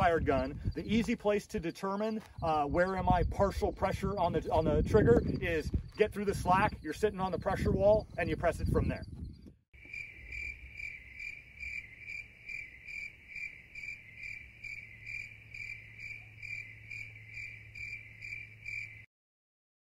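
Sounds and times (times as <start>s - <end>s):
cricket chirping: 9.8s - 19.1s.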